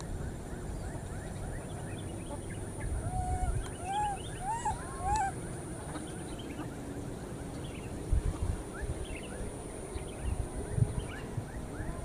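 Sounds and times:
baby macaque coo calls: 2.9 - 5.4.

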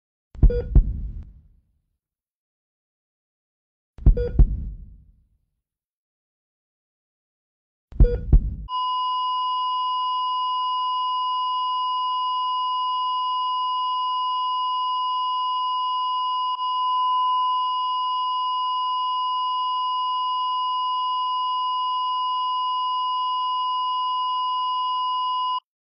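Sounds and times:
short low boom: 4.1 - 5.0.

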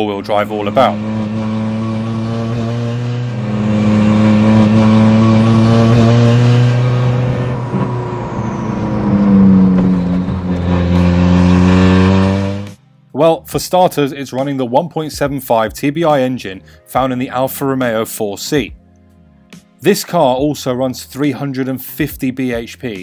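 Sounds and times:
car engine running: 0.0 - 12.8.

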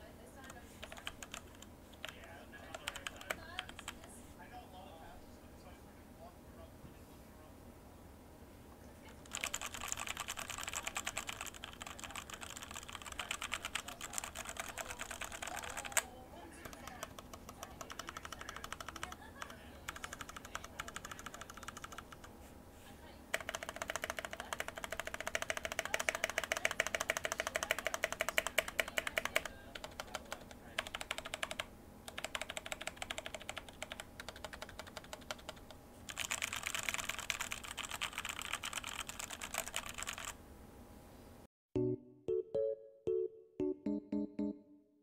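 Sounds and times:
mechanical keyboard typing: 0.4 - 4.1, 9.2 - 22.3, 23.3 - 40.4.

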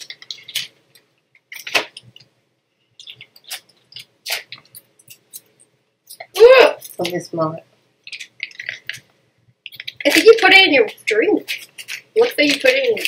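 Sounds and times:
plastic wrappers crinkling and tearing: 0.0 - 2.3, 3.0 - 5.5, 8.0 - 13.0.

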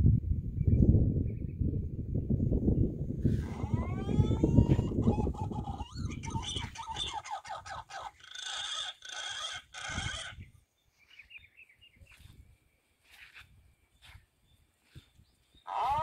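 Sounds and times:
bird calls: 3.4 - 12.4, 13.0 - 16.0.

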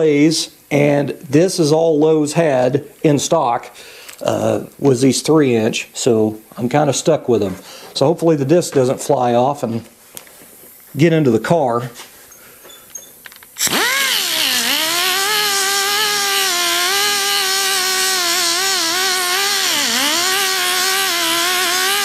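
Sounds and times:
angle grinder grinding metal: 13.6 - 22.0.

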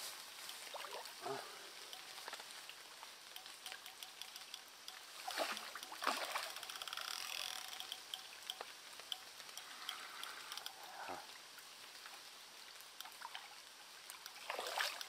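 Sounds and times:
water trickling: 0.1 - 15.0
fish splashing in water: 3.4 - 8.5, 13.0 - 15.0.

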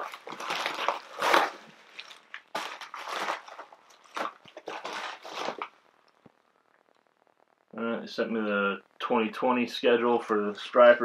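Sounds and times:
plastic packaging crinkling: 0.0 - 6.3.

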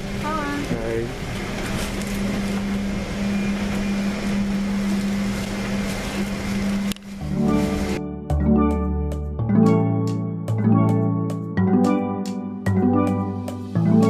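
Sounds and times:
airliner cabin ventilation hum: 0.0 - 8.0
plucked string music: 7.2 - 14.0.

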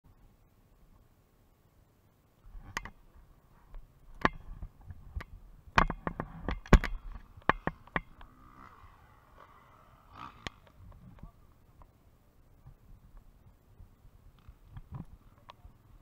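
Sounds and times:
rustling: 2.4 - 16.0
sharp knocks and clicks: 4.1 - 8.3.

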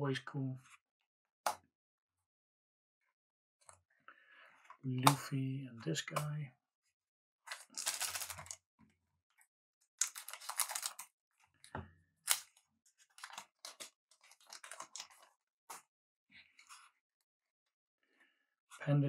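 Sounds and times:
cards and wrapper rustling: 7.5 - 8.6, 10.0 - 11.1, 12.2 - 15.4.

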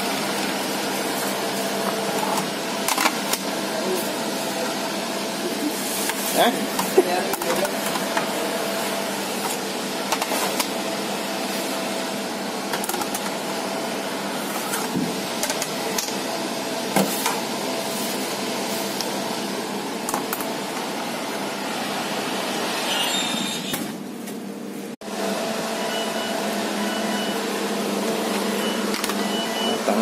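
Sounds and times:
whirring machine hum: 0.0 - 30.0.

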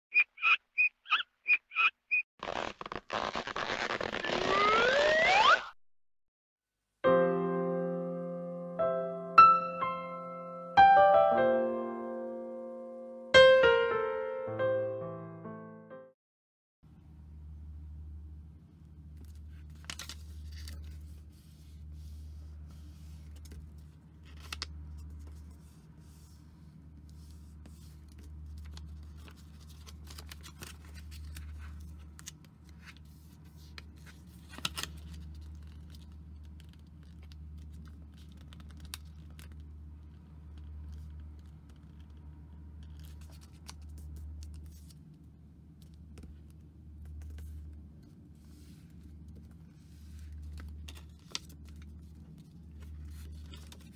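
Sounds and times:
paper folding and crinkling: 2.4 - 4.7, 19.1 - 42.2, 42.8 - 53.9.

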